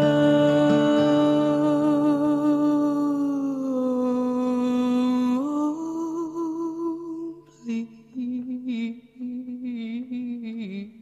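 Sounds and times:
slow song with solo voice: 0:00.0 - 0:11.0.

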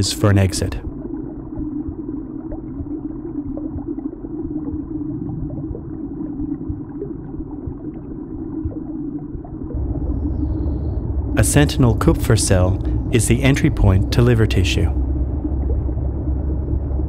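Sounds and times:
faint gurgling ticks: 0:00.0 - 0:17.0
low muffled rumble: 0:00.0 - 0:17.0.

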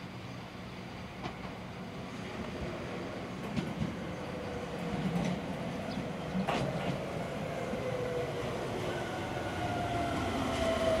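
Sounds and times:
electric train running with whine: 0:04.2 - 0:11.0.

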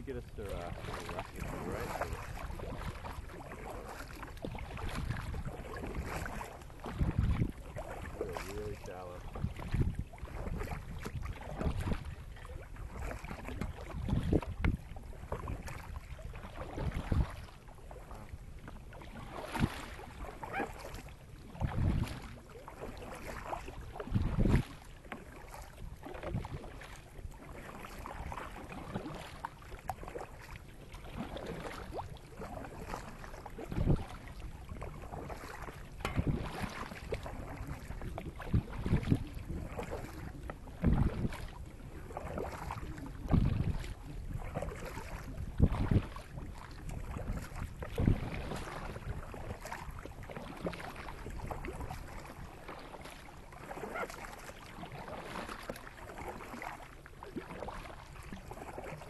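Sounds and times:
kayak paddles splashing: 0:00.0 - 0:59.0
wind buffeting microphone: 0:04.6 - 0:07.9, 0:08.5 - 0:15.7, 0:21.5 - 0:22.2, 0:36.0 - 0:41.4, 0:42.3 - 0:49.6.

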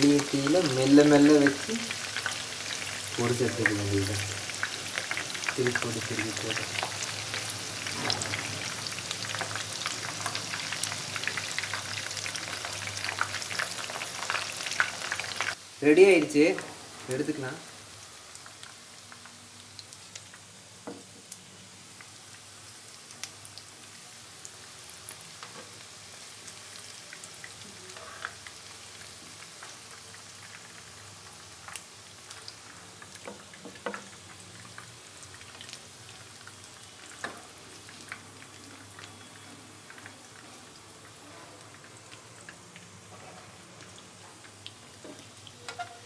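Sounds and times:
oil sizzling with pops: 0:00.0 - 0:46.0.

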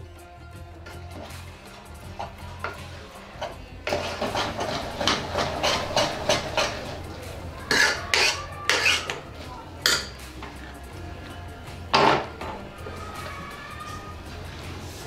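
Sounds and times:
spoon scraping a metal pot: 0:00.9 - 0:10.6
spoon knocking on a pot: 0:02.3 - 0:07.0, 0:09.8 - 0:10.2.

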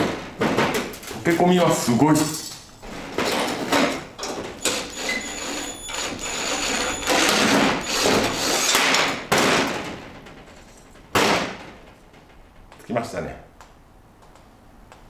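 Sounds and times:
impact driver hammering: 0:05.9 - 0:09.8.

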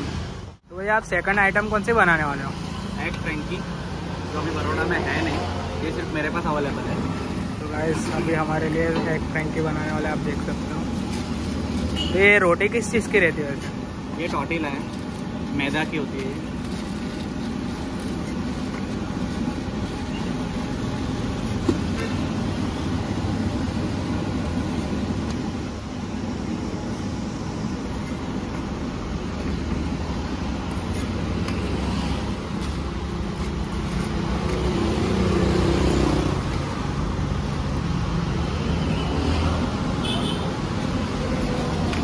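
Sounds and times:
street traffic noise: 0:00.0 - 0:42.0
vehicle passing: 0:29.8 - 0:40.0.

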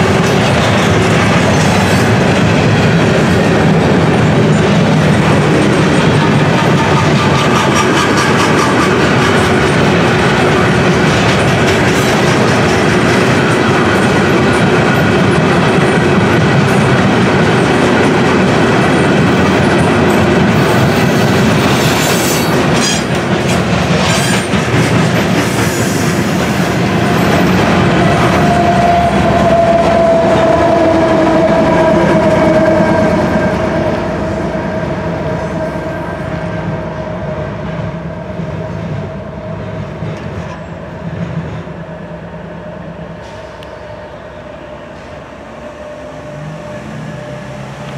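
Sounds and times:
train wheels rumbling on rails: 0:00.0 - 0:47.9.

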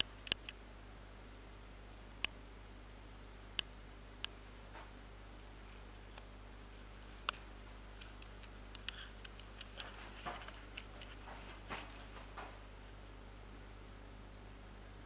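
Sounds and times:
small clicks and ticks: 0:00.0 - 0:00.6, 0:07.2 - 0:12.1
faint steady hum: 0:00.0 - 0:15.0.

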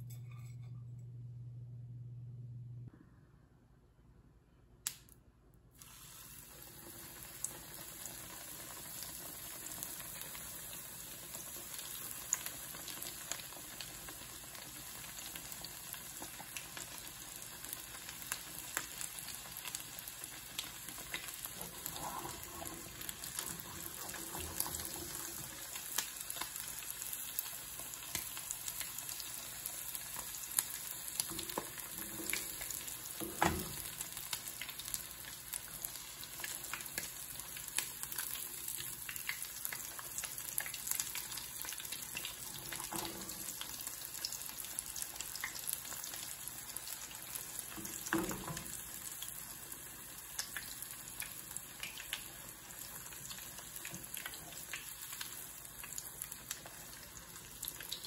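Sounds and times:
cutlet sizzling in oil: 0:05.8 - 0:58.0.

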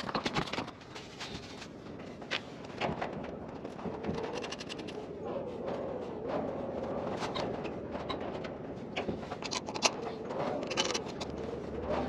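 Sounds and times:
low wavering hoot: 0:09.5 - 0:12.0.

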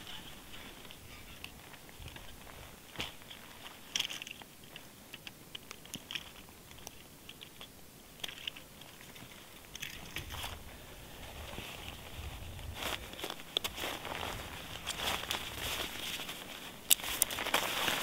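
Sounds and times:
footsteps crunching in snow: 0:00.0 - 0:04.0, 0:10.2 - 0:18.0.

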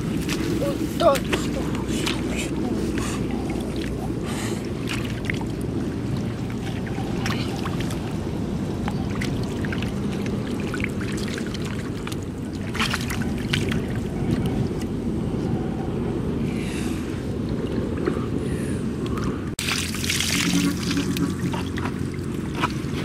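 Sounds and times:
muddy water splashing: 0:00.0 - 0:14.8, 0:19.6 - 0:23.0.

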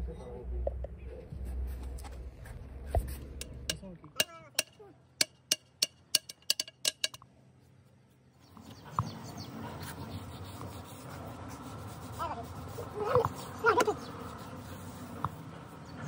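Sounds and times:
sharp taps with brief ring: 0:03.4 - 0:07.2.

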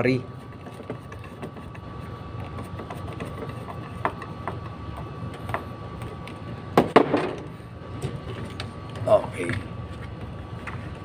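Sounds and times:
wire leads and screwdriver tapping: 0:00.5 - 0:06.4.

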